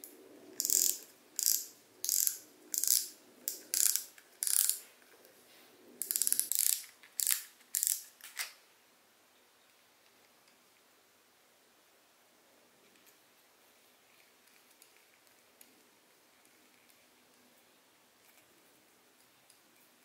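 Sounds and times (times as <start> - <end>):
fishing reel ratcheting clicks: 0.6 - 4.8, 6.0 - 8.1.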